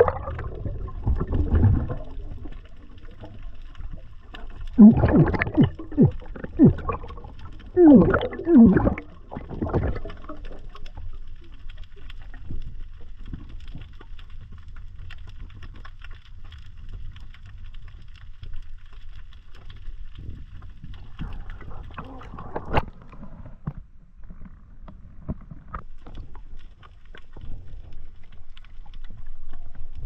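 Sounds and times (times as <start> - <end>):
underwater air bubbles gurgling: 0.0 - 15.7
faint underwater crackle: 0.0 - 30.0.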